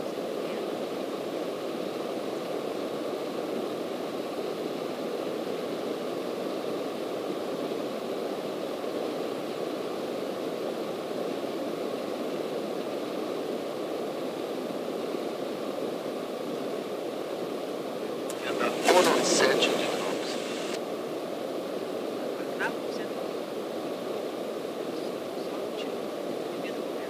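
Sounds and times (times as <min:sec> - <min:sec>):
small plane cabin drone: 0:00.0 - 0:27.0.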